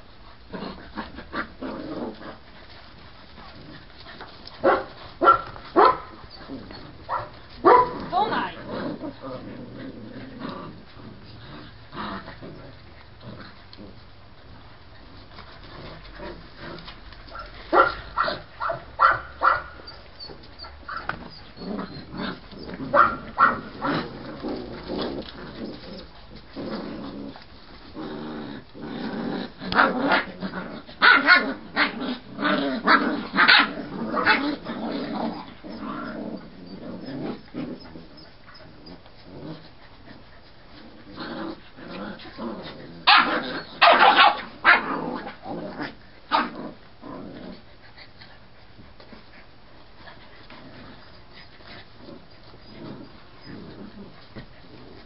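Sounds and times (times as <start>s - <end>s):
puppies growling: 0.0s - 55.0s
puppies yipping: 43.1s - 44.8s.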